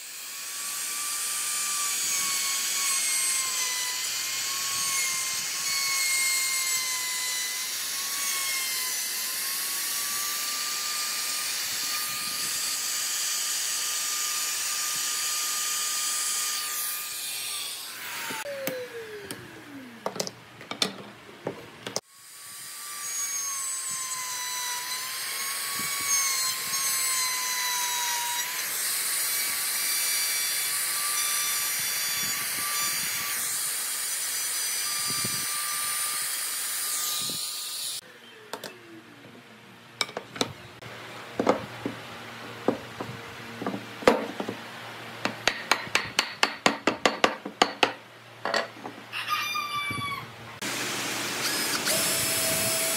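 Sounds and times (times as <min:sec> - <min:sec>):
trim router cutting wood: 0:00.0 - 0:20.0, 0:22.0 - 0:38.0, 0:50.6 - 0:52.9.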